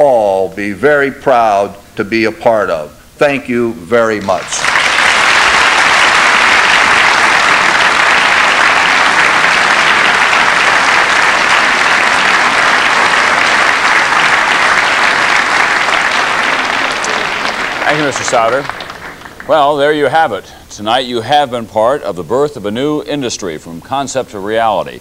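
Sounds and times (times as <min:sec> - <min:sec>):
audience applause: 0:04.2 - 0:20.0.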